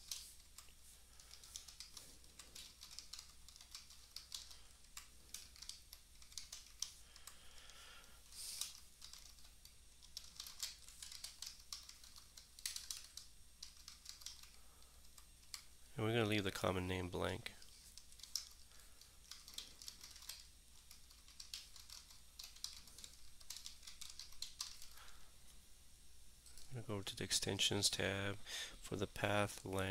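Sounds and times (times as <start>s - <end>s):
keyboard typing: 0.0s - 15.7s, 17.6s - 25.2s
low steady hum: 0.0s - 29.9s.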